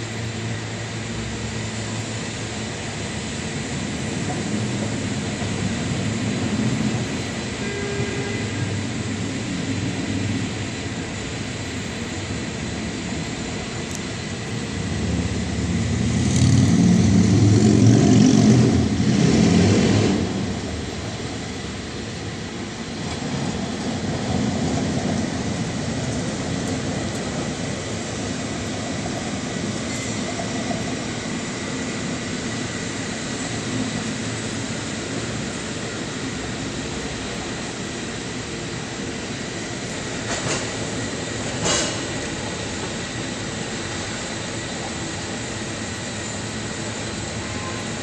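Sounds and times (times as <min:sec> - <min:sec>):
street traffic rumble: 0:00.0 - 0:48.0.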